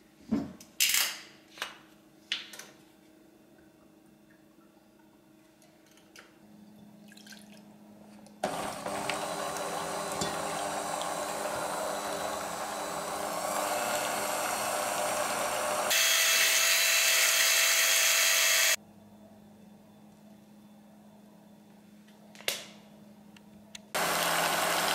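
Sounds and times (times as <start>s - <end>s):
electric hand mixer beating batter: 8.4s - 18.8s, 24.0s - 24.9s.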